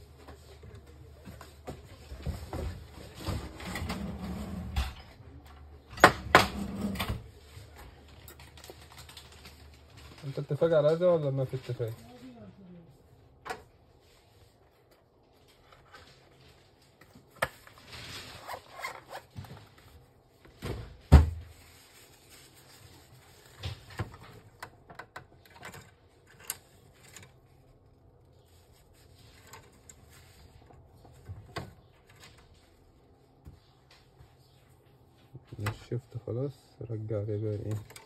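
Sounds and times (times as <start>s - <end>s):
rustling inside printer: 13.3s - 38.0s.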